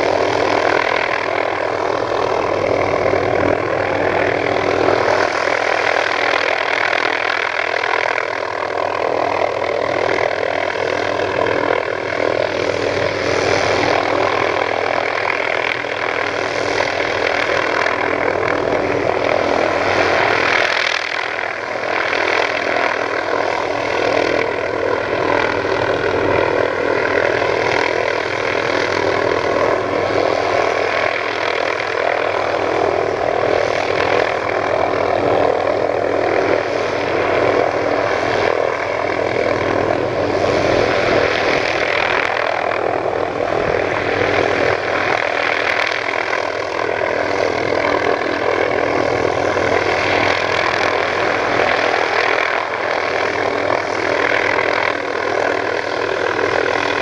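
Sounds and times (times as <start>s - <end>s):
helicopter hovering: 0.0s - 57.0s.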